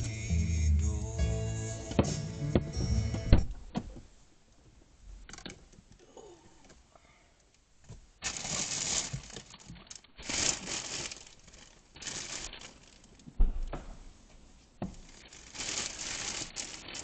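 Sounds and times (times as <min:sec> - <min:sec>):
rustling handling noise: 0:07.9 - 0:13.4, 0:14.1 - 0:17.0.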